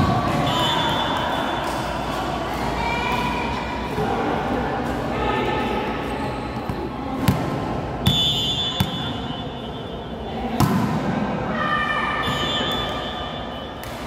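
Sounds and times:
volleyball bouncing on gym floor: 6.6 - 9.2, 10.6 - 11.2.

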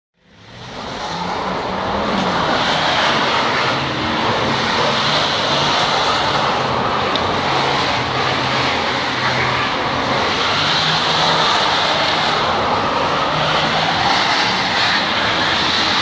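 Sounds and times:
diesel engine at high revs: 0.2 - 16.0.

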